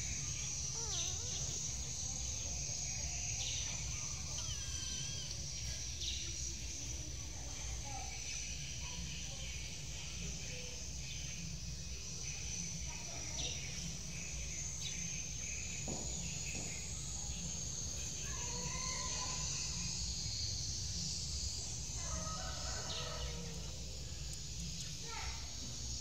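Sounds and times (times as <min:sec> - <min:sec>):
high-pitched insect drone: 0:00.0 - 0:26.0
distant bird call: 0:00.2 - 0:02.0.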